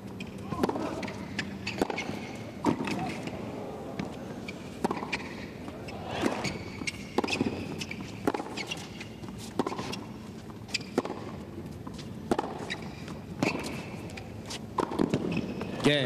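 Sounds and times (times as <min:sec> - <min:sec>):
rackets striking tennis ball: 0:00.2 - 0:11.4, 0:14.8 - 0:15.8.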